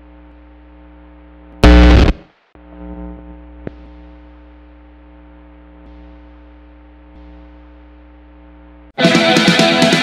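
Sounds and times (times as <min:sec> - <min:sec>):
guitar amplifier hum and hiss: 0:00.0 - 0:10.0
distorted rock guitar riff with drums: 0:01.6 - 0:02.2, 0:09.0 - 0:10.0.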